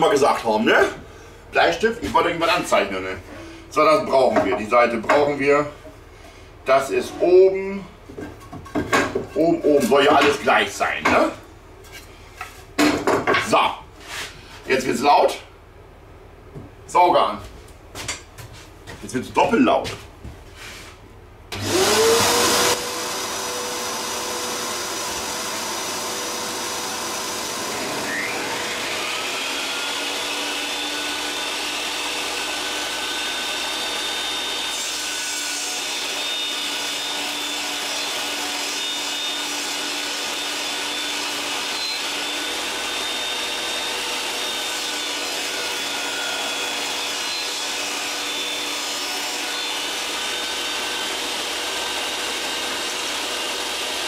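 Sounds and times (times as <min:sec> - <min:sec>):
shop vacuum droning: 0:20.6 - 0:54.0
electric router whine: 0:21.5 - 0:54.0.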